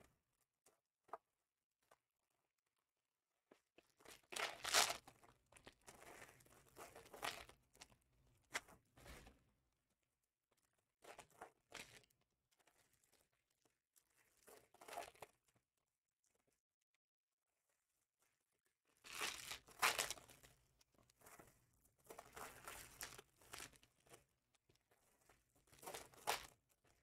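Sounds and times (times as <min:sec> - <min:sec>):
wrappers tearing and crinkling: 0:04.3 - 0:05.0, 0:19.0 - 0:20.4, 0:25.7 - 0:26.6.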